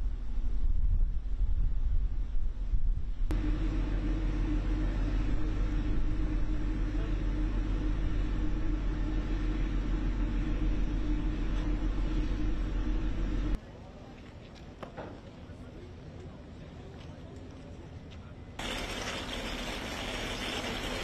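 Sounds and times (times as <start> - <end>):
wind buffeting microphone: 0.0 - 3.4
ship machinery droning hum: 0.0 - 13.6.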